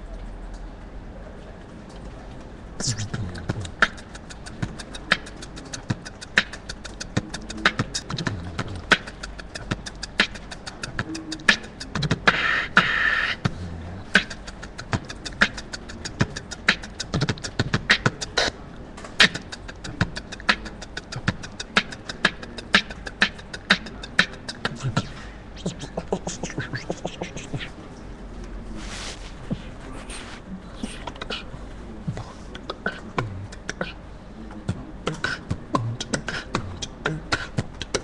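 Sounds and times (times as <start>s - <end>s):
beatbox hissing sound: 2.8s - 18.6s, 19.2s - 27.7s, 32.6s - 34.0s, 35.1s - 38.0s
person beatboxing: 2.8s - 27.9s, 29.2s - 38.0s.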